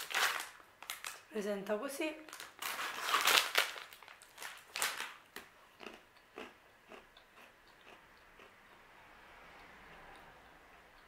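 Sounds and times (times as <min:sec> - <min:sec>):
cracker crunching while chewed: 0:03.0 - 0:08.8.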